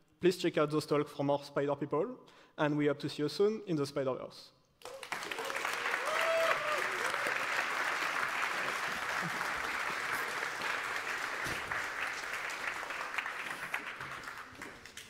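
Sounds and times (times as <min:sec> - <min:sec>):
audience applauding: 0:04.8 - 0:15.0.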